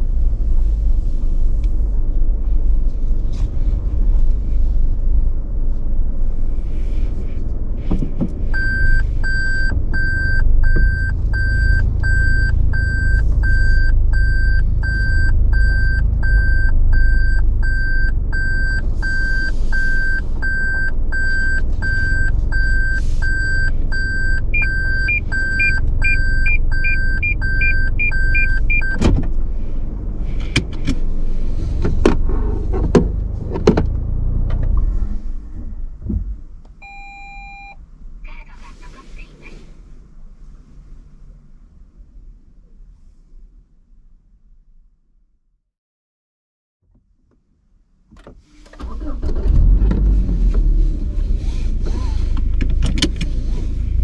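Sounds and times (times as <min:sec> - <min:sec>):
car engine rumble: 0:00.0 - 0:45.4, 0:46.8 - 0:54.0
reverse warning beeping: 0:08.5 - 0:29.0, 0:36.8 - 0:37.8
fast high parking sensor beeps: 0:08.6 - 0:29.0, 0:36.8 - 0:37.8
sharp clicks and knocks: 0:52.4 - 0:53.3.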